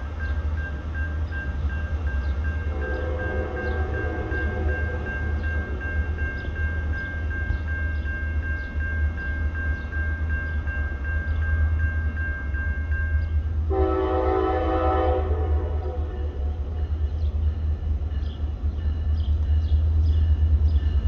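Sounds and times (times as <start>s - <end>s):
locomotive bell ringing: 0.0s - 21.0s
low locomotive rumble: 0.0s - 21.0s
locomotive horn: 2.7s - 5.1s, 13.7s - 16.4s.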